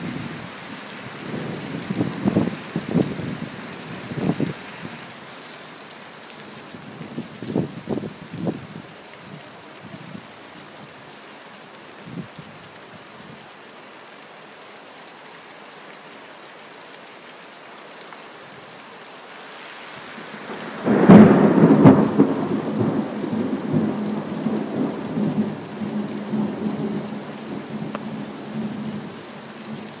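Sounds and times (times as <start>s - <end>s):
steady rain: 0.0s - 30.0s
thunderclap rumbling: 20.5s - 28.2s.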